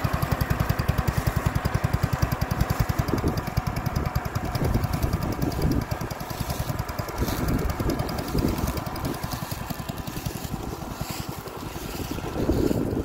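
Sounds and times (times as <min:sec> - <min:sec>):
small engine running: 0:00.0 - 0:13.0.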